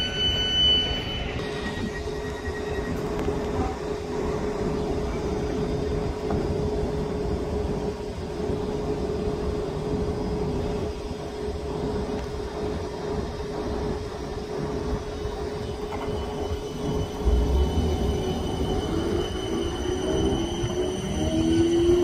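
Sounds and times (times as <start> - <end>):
electric train humming: 0.0 - 22.0.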